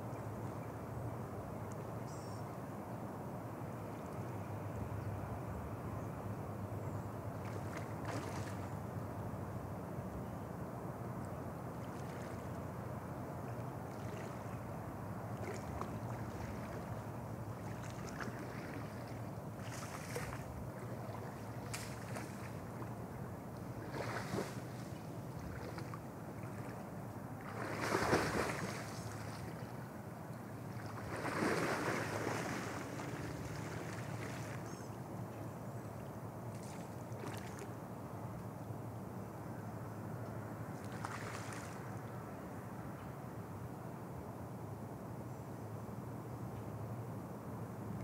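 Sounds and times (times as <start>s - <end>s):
steady background hiss: 0.0s - 48.0s
water splashing and sloshing: 7.3s - 8.8s, 11.7s - 13.0s, 13.6s - 29.9s, 30.5s - 34.8s, 36.5s - 37.8s, 40.8s - 42.1s.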